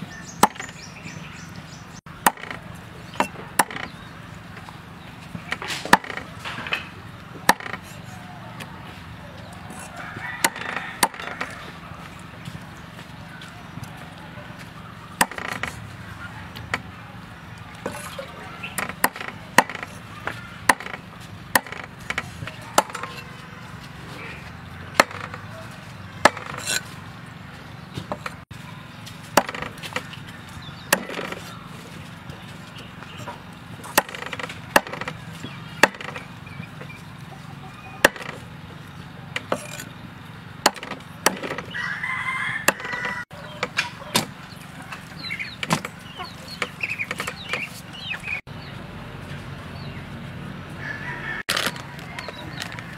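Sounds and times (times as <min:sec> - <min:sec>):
cleaver chopping on wooden block: 0:00.4 - 0:00.8, 0:02.2 - 0:02.6, 0:03.2 - 0:03.9, 0:05.5 - 0:06.3, 0:07.4 - 0:08.1, 0:09.7 - 0:11.5, 0:15.2 - 0:15.8, 0:18.7 - 0:23.3, 0:25.0 - 0:25.4, 0:26.2 - 0:26.8, 0:29.4 - 0:30.1, 0:30.9 - 0:31.4, 0:33.9 - 0:36.2, 0:38.0 - 0:38.4, 0:40.6 - 0:41.7, 0:42.6 - 0:44.3.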